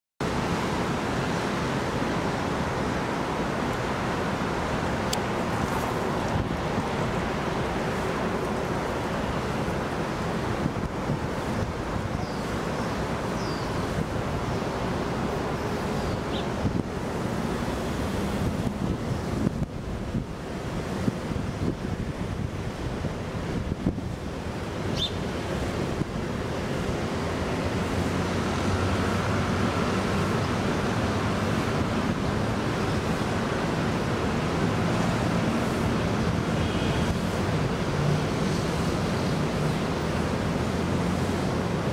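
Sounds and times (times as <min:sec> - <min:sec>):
rushing background noise: 0:00.2 - 0:41.9
wind noise on microphone: 0:00.3 - 0:41.9
short high bird chirp: 0:24.9 - 0:25.2.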